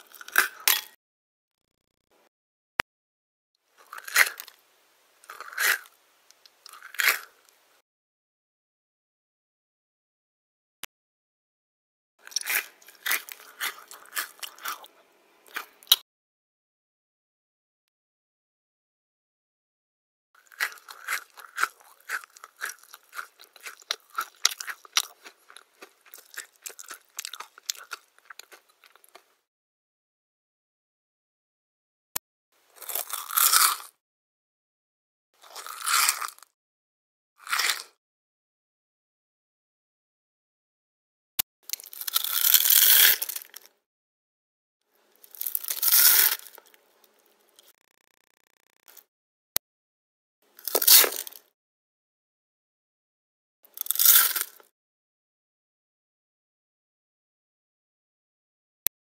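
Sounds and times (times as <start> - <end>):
crunchy chewing: 0.0 - 0.9, 3.8 - 4.6, 5.2 - 6.0, 6.6 - 7.5, 12.2 - 16.0, 20.4 - 29.3, 32.8 - 33.9, 35.4 - 36.5, 37.4 - 38.0, 41.6 - 43.7, 45.0 - 49.1, 50.5 - 51.5, 53.7 - 54.7.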